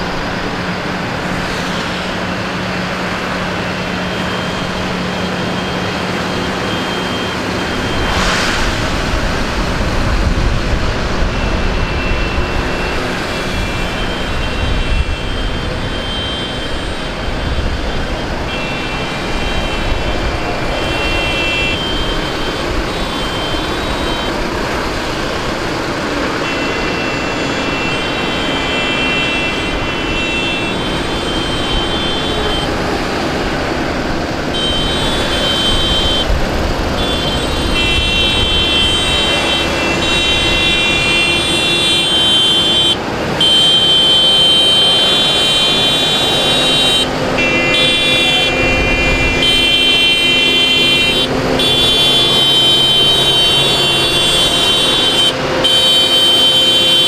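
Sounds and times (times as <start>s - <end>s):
tractor diesel engines: 0.0s - 57.0s
horns honking: 11.2s - 57.0s.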